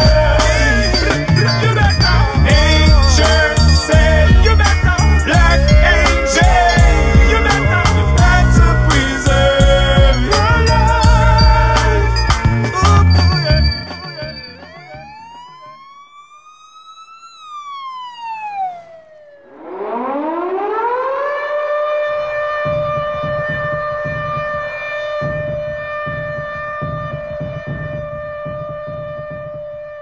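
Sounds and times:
low rumble: 0.0 - 13.8
siren winding up and down: 0.0 - 29.9.

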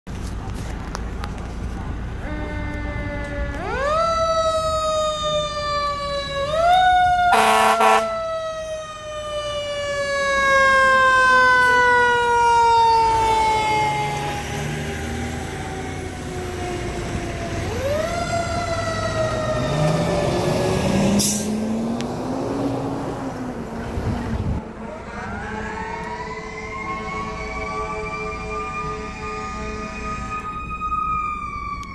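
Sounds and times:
fire engine siren wailing: 0.5 - 31.9
loud horn blast: 7.3 - 8.2.

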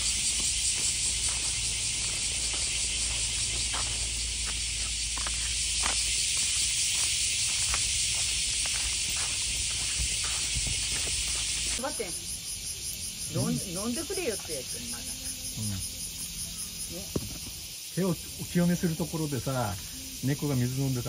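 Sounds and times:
footsteps on gritty dirt path: 0.0 - 11.9
loud high outdoor hiss: 0.0 - 21.0.

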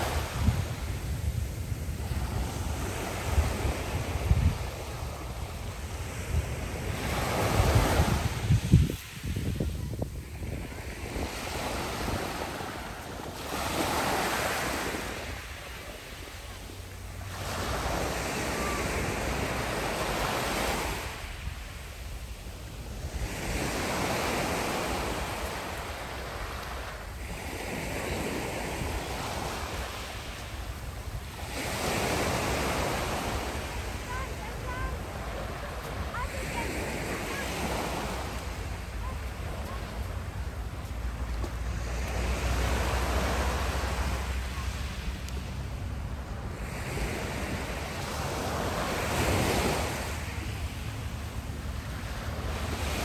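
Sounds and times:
wind rumbling on microphone: 0.0 - 13.9
waves washing over pebbles: 0.0 - 21.4, 22.0 - 53.0.

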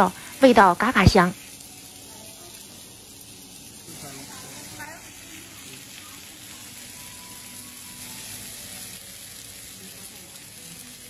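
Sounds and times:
meat sizzling on grill plate: 0.0 - 11.0.

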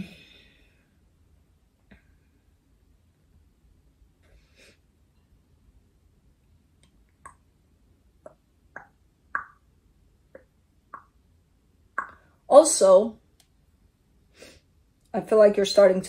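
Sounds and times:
faint mouth pops: 8.2 - 9.6, 12.0 - 12.2.

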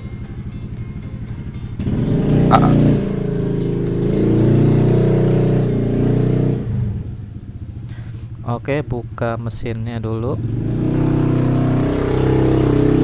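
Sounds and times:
vehicle engine running: 0.0 - 13.0.

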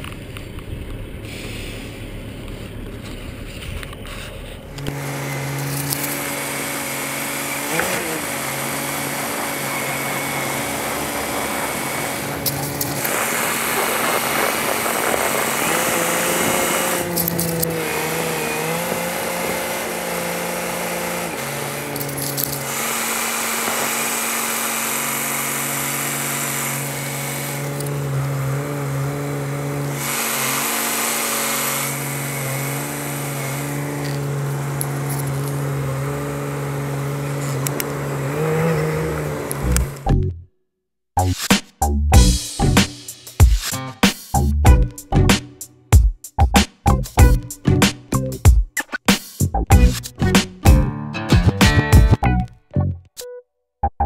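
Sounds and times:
truck engine running: 0.0 - 40.3, 46.4 - 48.5, 49.4 - 52.5
broad hiss: 1.2 - 2.1, 42.3 - 44.4.

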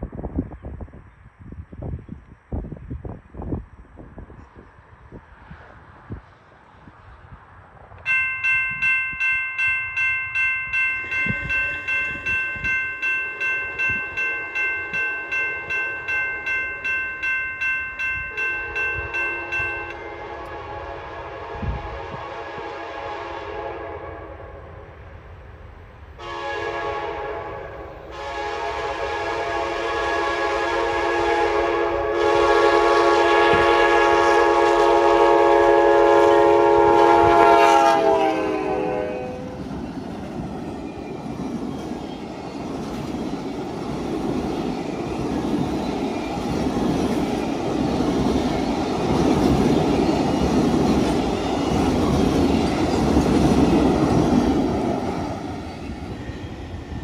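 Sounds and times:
locomotive horn blasts: 18.4 - 24.8, 26.2 - 39.6
train wheels clattering on rails: 39.5 - 57.0.

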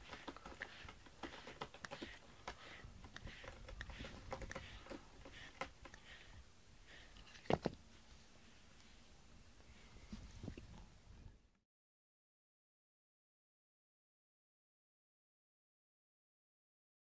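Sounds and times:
cat rubbing against bristle brush: 0.0 - 7.2.

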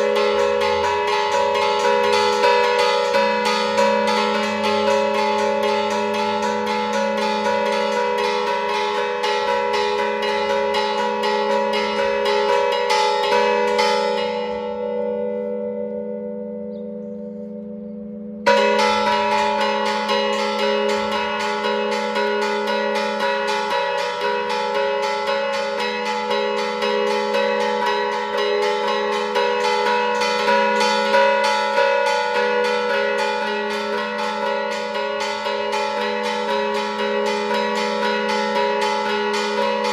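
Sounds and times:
bells clanging: 0.0 - 39.9.

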